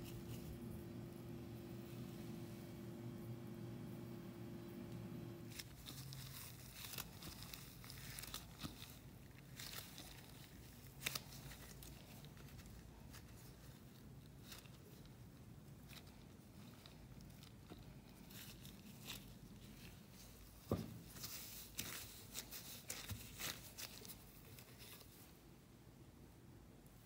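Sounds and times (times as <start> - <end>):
faint steady hum: 0.0 - 27.0
sticky dough tearing and crackling: 5.5 - 25.2.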